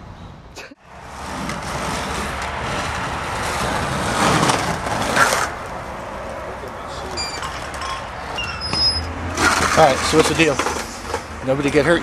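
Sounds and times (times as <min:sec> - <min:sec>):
skateboard wheels rolling on pavement: 0:00.8 - 0:08.4.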